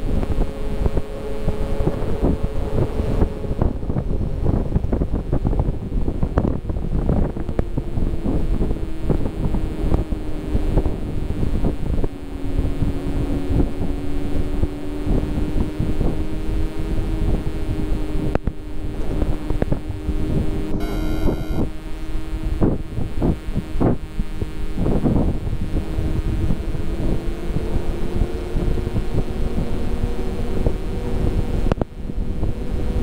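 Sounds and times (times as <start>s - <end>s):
wind buffeting microphone: 0.0s - 20.6s.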